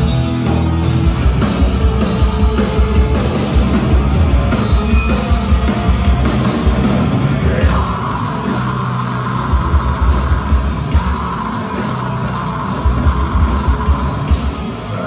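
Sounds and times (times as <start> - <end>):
pounding drums: 0.0 - 14.8
distorted electric guitars and bass: 0.0 - 15.0.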